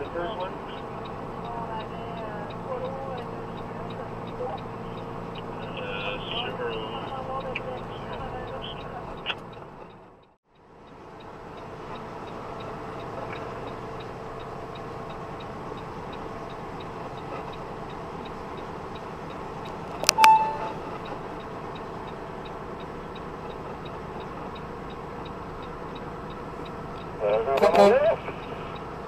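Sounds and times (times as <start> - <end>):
fast regular ticking: 0.0 - 27.3
truck engine and road noise: 0.0 - 29.0
sharp click: 19.7 - 20.8
short beep: 20.0 - 20.8.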